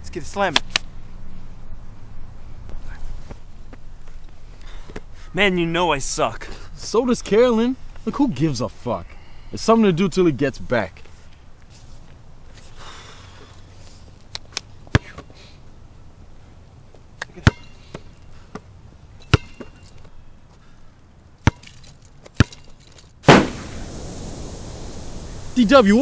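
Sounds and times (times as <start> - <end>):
basketball bouncing on concrete: 14.9 - 15.3, 17.3 - 18.7, 19.3 - 19.8.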